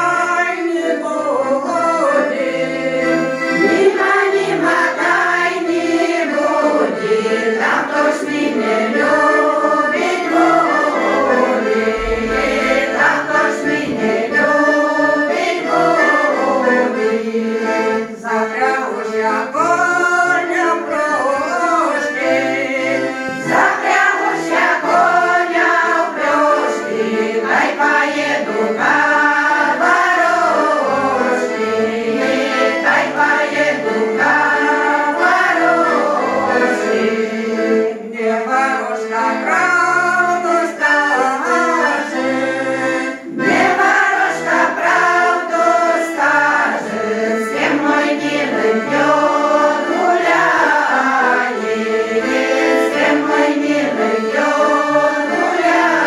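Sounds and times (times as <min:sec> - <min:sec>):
women singing together: 0:00.0 - 0:56.0.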